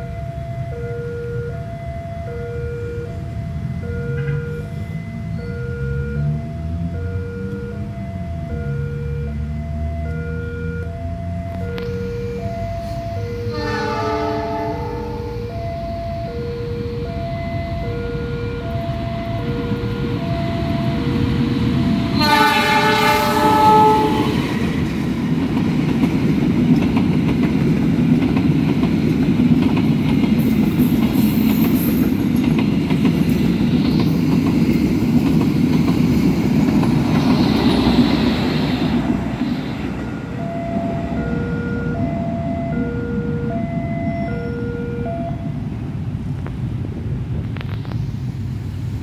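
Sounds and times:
level crossing alarm tones: 0.0 - 24.8, 38.9 - 45.7
train coaches rumbling and clattering: 3.1 - 6.9, 11.4 - 49.0
locomotive horn blast: 11.5 - 15.6, 21.8 - 24.8.

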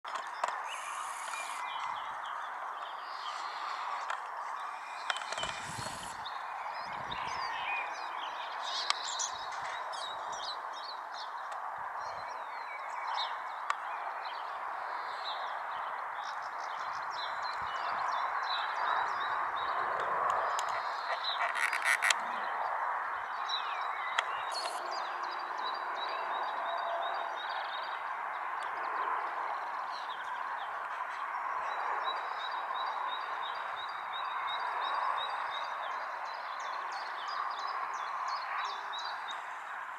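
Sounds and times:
steady rushing noise: 0.1 - 7.6
small birds chirping: 0.1 - 26.6.

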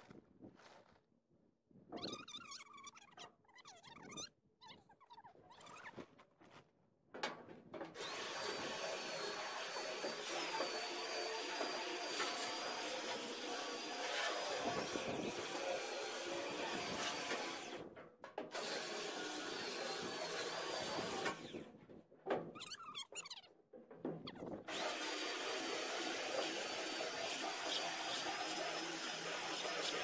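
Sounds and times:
belt sander sanding metal: 8.0 - 17.8, 24.7 - 30.0.

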